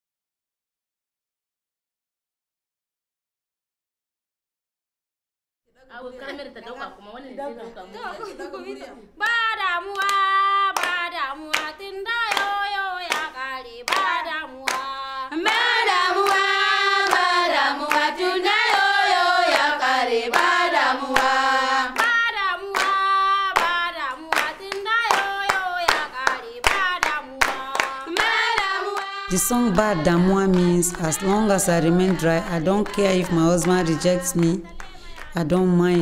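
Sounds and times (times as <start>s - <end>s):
women singing unaccompanied: 7.8s - 36.0s
hand clapping: 9.2s - 18.9s, 19.5s - 36.0s.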